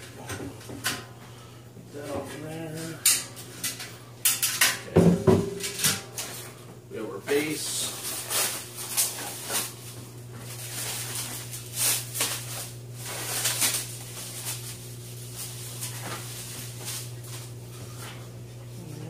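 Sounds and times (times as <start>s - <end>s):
steady low hum: 0.0s - 19.0s
plastic wrap rustling: 6.3s - 19.0s.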